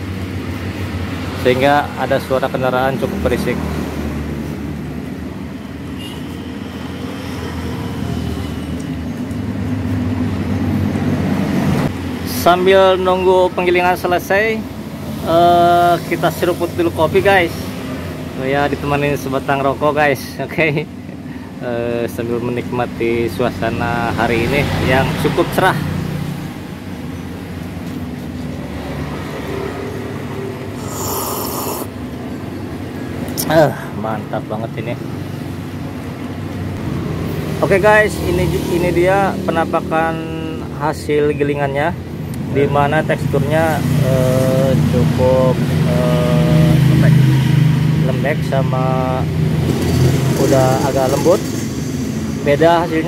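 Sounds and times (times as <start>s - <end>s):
road traffic hum: 0.0s - 53.0s.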